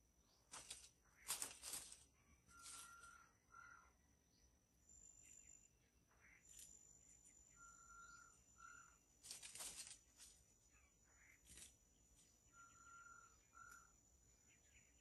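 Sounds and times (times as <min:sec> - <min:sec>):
brief rustle: 0:00.5 - 0:02.0, 0:09.2 - 0:10.4.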